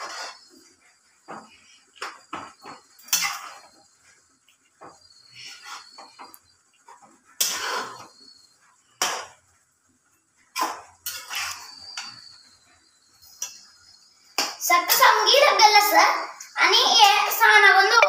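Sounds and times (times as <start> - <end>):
metal spatula scraping steel pot: 0.0 - 0.6, 3.0 - 3.8, 7.3 - 8.2, 10.6 - 12.4.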